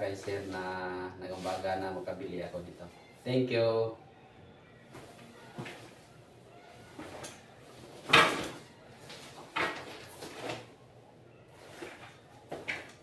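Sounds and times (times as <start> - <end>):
wetsuit fabric rustling: 6.7 - 10.8, 11.5 - 13.0.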